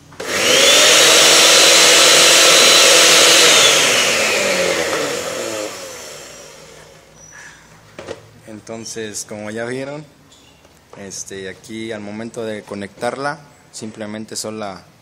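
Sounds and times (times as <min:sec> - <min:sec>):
blender motor running: 0:00.0 - 0:07.1.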